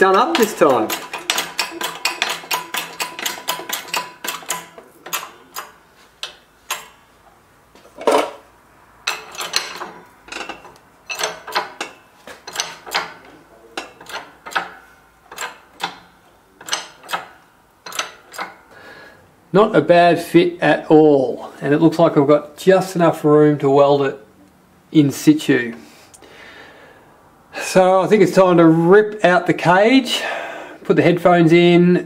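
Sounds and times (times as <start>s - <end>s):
shop press metallic clicks: 0.0s - 7.1s, 7.9s - 18.7s.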